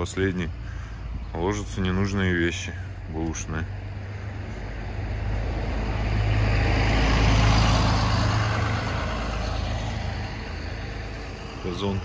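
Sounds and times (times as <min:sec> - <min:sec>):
vehicle driving past: 0:03.6 - 0:11.8.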